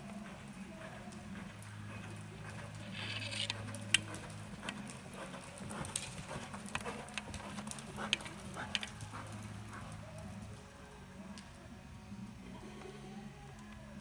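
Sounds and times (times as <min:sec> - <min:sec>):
horse hoofbeats on dirt: 0:00.0 - 0:10.6.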